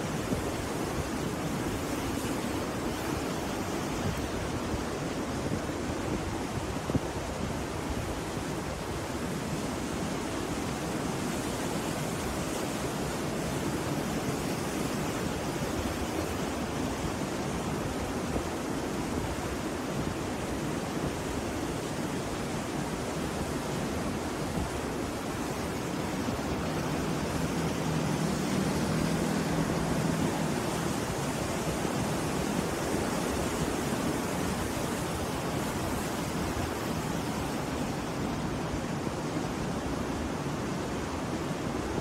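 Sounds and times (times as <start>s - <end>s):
waves breaking on beach: 0.0s - 42.0s.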